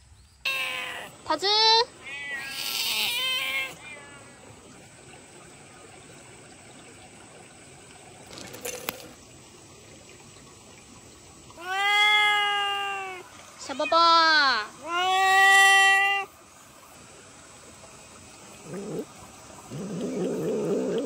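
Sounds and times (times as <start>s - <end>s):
cat meowing: 0.5s - 1.1s, 2.0s - 4.3s, 11.6s - 14.0s, 14.8s - 16.3s.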